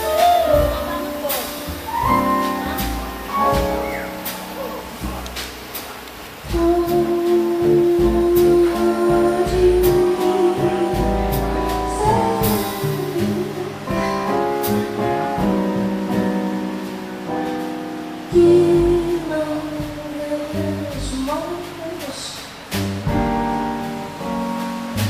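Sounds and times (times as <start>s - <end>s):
double bass: 0.0s - 25.0s
drums: 0.0s - 25.0s
piano: 0.0s - 25.0s
woman singing: 6.5s - 14.0s, 18.3s - 22.5s.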